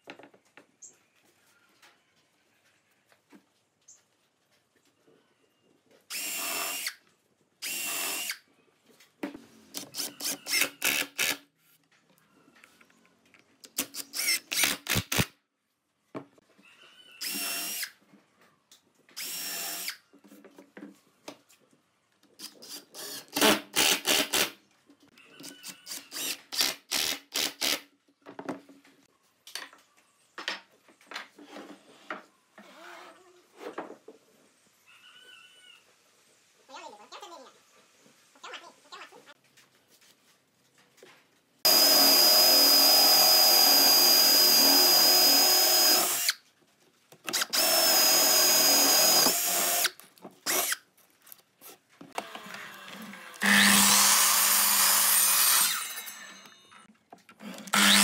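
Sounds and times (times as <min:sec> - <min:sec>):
drill motor whine: 0:41.7 - 0:46.3, 0:47.4 - 0:49.9, 0:53.3 - 0:55.8, 0:57.7 - 0:58.0.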